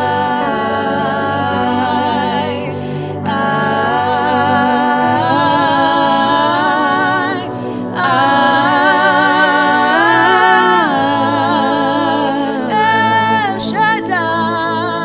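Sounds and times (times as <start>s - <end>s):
person singing with vibrato: 0.0s - 15.0s.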